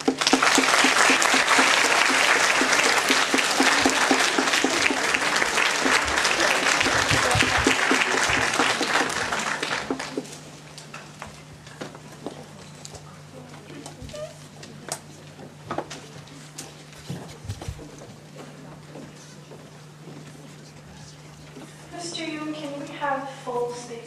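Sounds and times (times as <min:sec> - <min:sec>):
audience applauding: 0:00.0 - 0:10.4.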